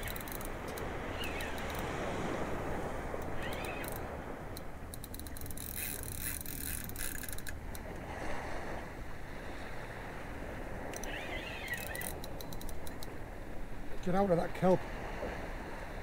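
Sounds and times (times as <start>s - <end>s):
fishing reel clicking: 0.0s - 2.1s, 3.1s - 8.0s, 10.9s - 13.1s
sea: 0.0s - 16.0s
wind: 0.0s - 16.0s.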